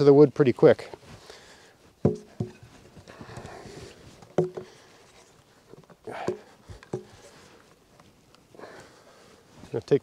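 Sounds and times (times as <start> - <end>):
wooden baton knocking wedges: 2.0 - 2.7, 4.2 - 4.8, 6.1 - 7.2.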